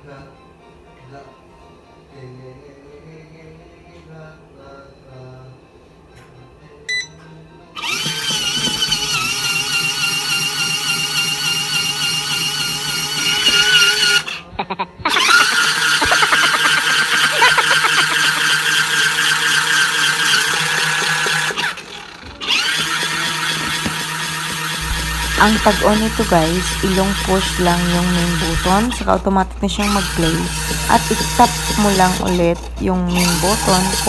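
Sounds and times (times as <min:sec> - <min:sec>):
small electric motor whining: 0:07.8 - 0:14.4, 0:15.1 - 0:34.0.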